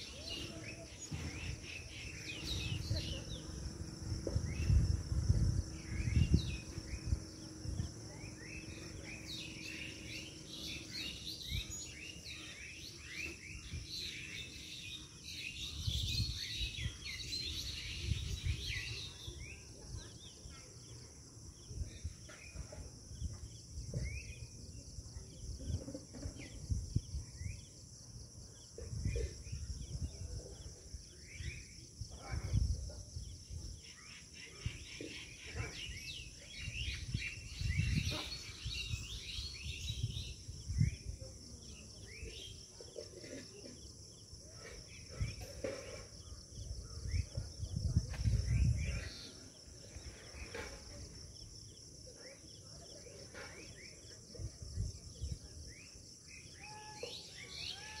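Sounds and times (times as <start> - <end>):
birds chirping and calling: 0.0 - 58.0.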